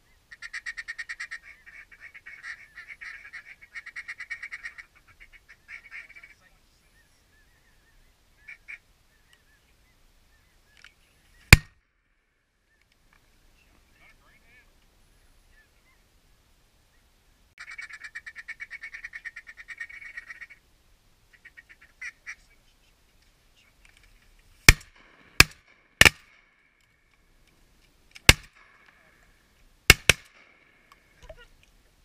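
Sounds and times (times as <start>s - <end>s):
ducks quacking: 0.3s - 6.6s, 17.6s - 20.6s, 21.3s - 22.6s
shotgun shots: 24.7s - 26.4s, 28.2s - 29.0s, 29.9s - 30.8s.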